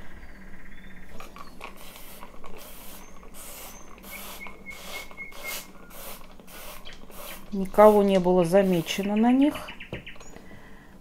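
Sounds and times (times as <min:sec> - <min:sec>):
spray bottle hissing squirts: 0:01.6 - 0:09.1.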